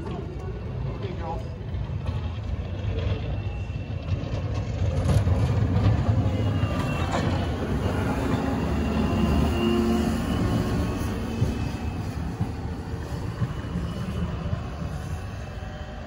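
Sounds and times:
loader diesel engine running: 0:04.0 - 0:16.0.

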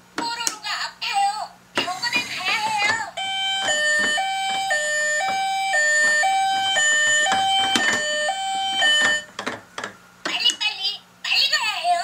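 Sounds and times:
toy electronic two-tone siren: 0:03.2 - 0:09.3.

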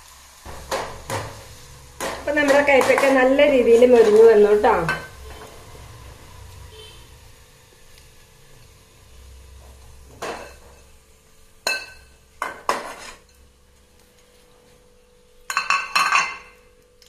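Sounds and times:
metal spoon scraping frying pan: 0:02.0 - 0:05.8, 0:11.6 - 0:13.4.

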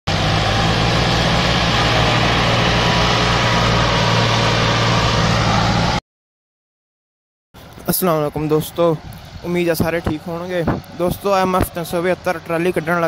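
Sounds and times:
diesel tractors pulling under load: 0:00.1 - 0:06.0.

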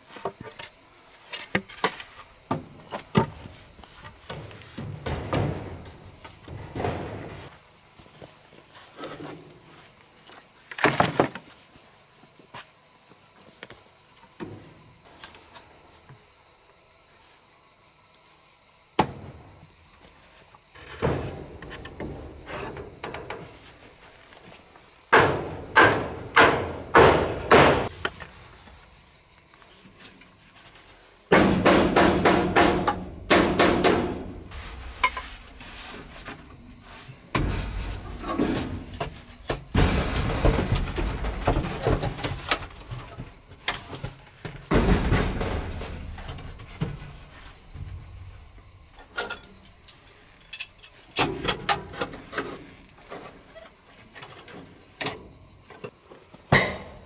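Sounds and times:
hammering on wooden door frame: 0:31.3 - 0:34.2.

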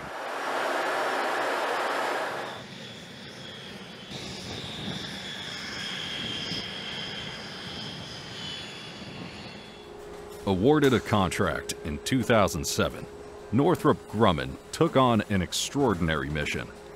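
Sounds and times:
loud jet rushing noise: 0:00.0 - 0:02.7
jet engine whine: 0:00.0 - 0:16.9.

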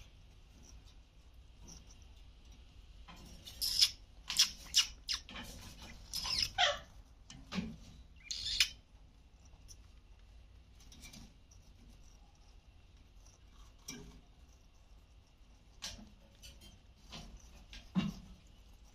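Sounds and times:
parrots squawking: 0:06.0 - 0:06.9, 0:08.2 - 0:08.8.

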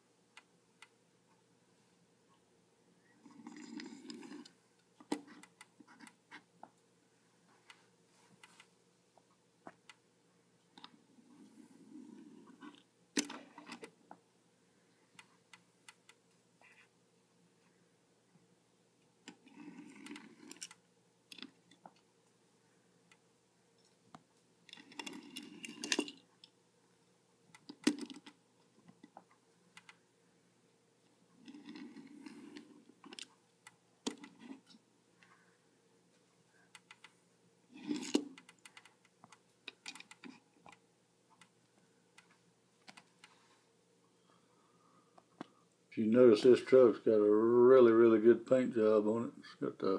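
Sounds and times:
toy cars clicking on tabletop: 0:19.3 - 0:21.5, 0:27.6 - 0:28.4, 0:37.9 - 0:40.8.

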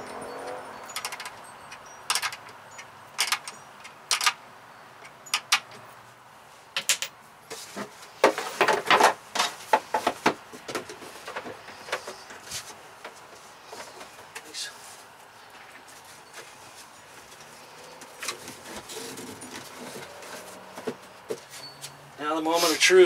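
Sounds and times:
wrench clinking on battery terminals: 0:00.0 - 0:04.4, 0:05.0 - 0:05.9.

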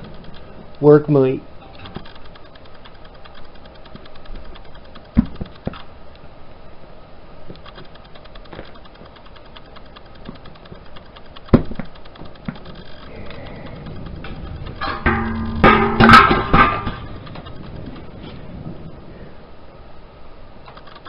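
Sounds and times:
metallic clanks ringing: 0:13.4 - 0:17.6.

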